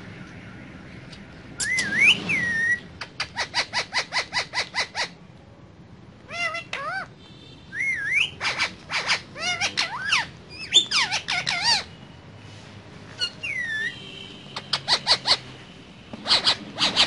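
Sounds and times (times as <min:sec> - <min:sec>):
parakeet chattering calls: 0:01.6 - 0:05.2, 0:06.3 - 0:07.1, 0:07.7 - 0:12.0, 0:13.2 - 0:17.0.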